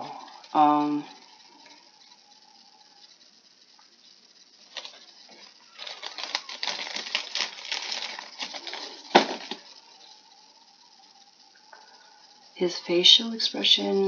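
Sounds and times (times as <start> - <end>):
plastic packaging crinkling: 4.6 - 10.2.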